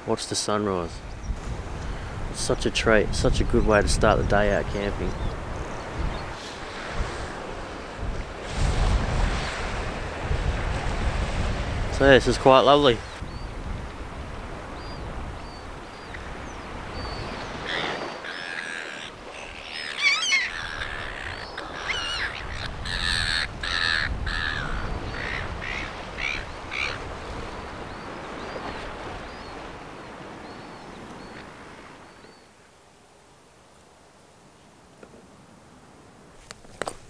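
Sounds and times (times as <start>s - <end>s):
harsh repeated bird calls: 14.8s - 27.1s
low steady hiss: 29.7s - 37.0s.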